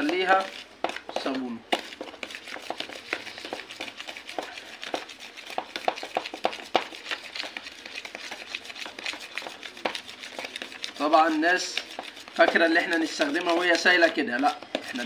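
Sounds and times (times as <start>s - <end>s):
spoon scraping plastic bowl: 0.0s - 15.0s.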